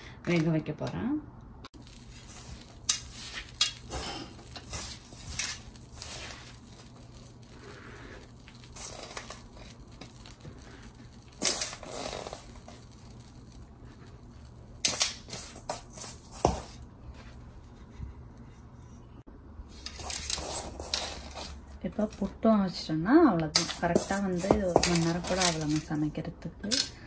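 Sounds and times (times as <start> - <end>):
damp flour crumbling and rustling: 1.8 - 18.8.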